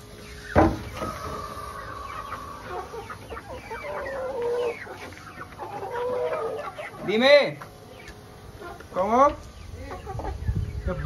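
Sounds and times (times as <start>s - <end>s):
young chickens clucking: 0.0s - 11.0s
chicken wavering call: 0.1s - 8.8s
chicken long drawn-out call: 0.2s - 7.0s.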